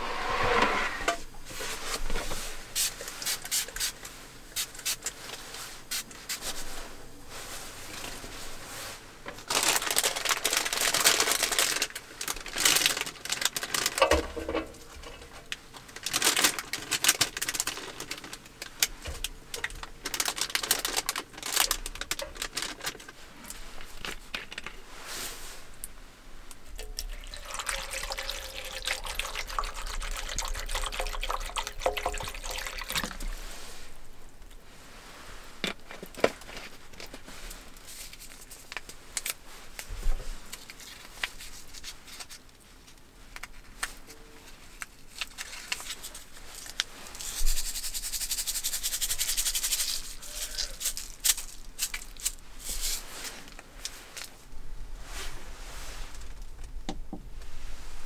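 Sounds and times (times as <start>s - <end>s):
plastic packaging crinkling: 9.4s - 24.8s, 26.8s - 33.4s, 35.7s - 42.6s, 43.3s - 54.4s
water pouring into a pot: 26.8s - 33.4s.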